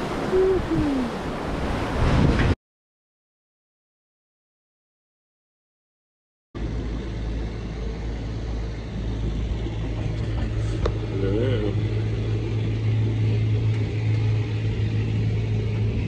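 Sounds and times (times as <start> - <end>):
water noise: 0.0 - 2.6, 6.6 - 16.0
wind: 0.0 - 2.6, 6.6 - 16.0
boat motor humming: 6.6 - 16.0.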